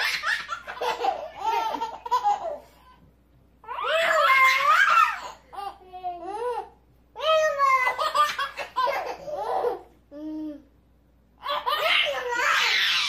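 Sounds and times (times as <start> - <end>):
baby laughing: 0.0 - 3.0, 3.7 - 6.7, 7.3 - 9.9, 11.4 - 13.0.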